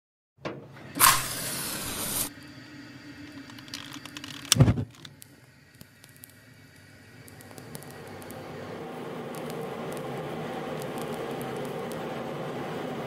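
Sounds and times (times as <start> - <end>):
gas burner igniting whoomp: 0.4 - 13.0
match struck and hissing: 1.0 - 2.3, 3.3 - 8.5, 9.3 - 12.1.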